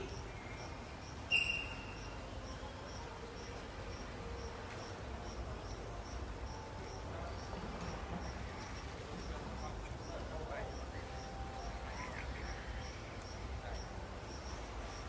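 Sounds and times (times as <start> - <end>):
insect chirping: 0.0 - 15.0.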